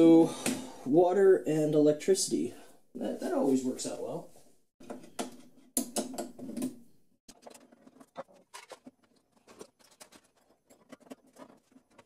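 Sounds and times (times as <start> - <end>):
plastic plate handled: 7.3 - 12.0.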